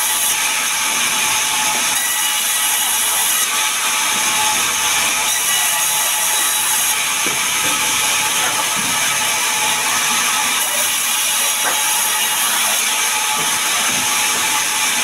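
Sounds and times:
band saw cutting log: 0.0s - 15.0s.

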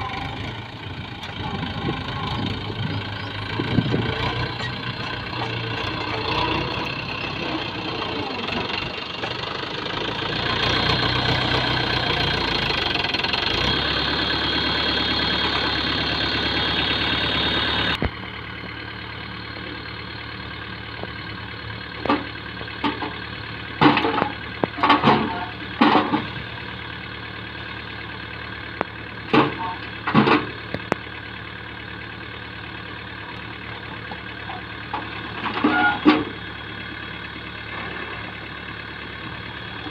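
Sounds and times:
tractor diesel engine: 0.0s - 39.9s
clunks of soil and tailgate: 23.8s - 26.4s, 28.8s - 31.0s, 33.3s - 36.4s.

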